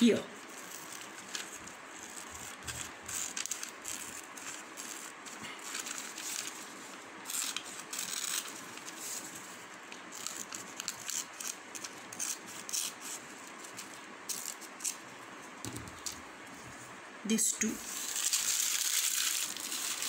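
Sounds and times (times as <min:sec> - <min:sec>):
paper rustling: 0:00.4 - 0:15.0, 0:17.8 - 0:20.0
scissors snipping paper: 0:00.5 - 0:06.6, 0:09.9 - 0:15.0.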